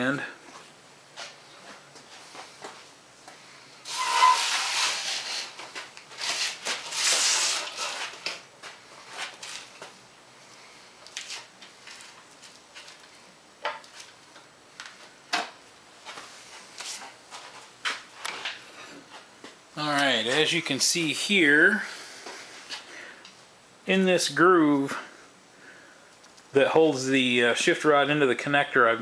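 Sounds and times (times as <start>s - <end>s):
metal stand scraping on concrete: 3.9s - 8.4s.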